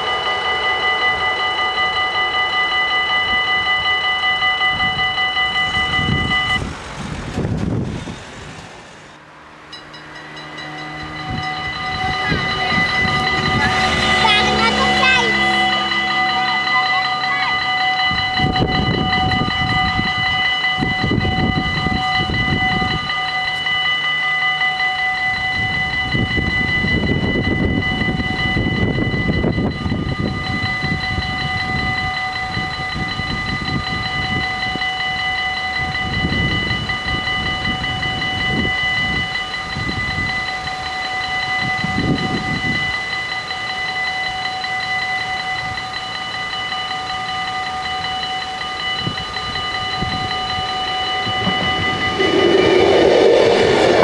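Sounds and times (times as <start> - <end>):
low rumble: 0.0 - 23.2, 50.0 - 54.0
level crossing warning bells: 0.0 - 54.0.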